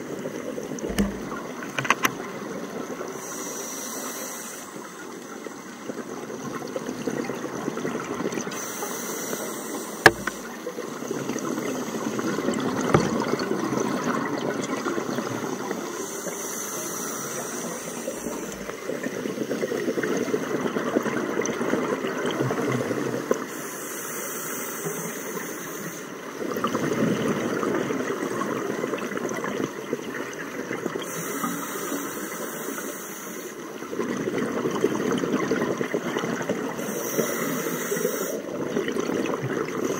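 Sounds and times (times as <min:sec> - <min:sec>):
hissing regulator inhale: 0:03.1 - 0:05.2, 0:08.5 - 0:10.5, 0:15.8 - 0:18.9, 0:23.5 - 0:26.2, 0:31.0 - 0:33.6, 0:36.8 - 0:38.5.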